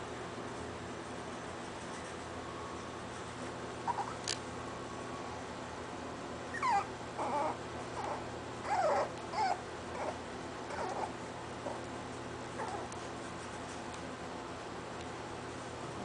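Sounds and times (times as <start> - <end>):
puppies whimpering and yipping: 3.8 - 4.3, 6.5 - 11.8, 12.6 - 13.0.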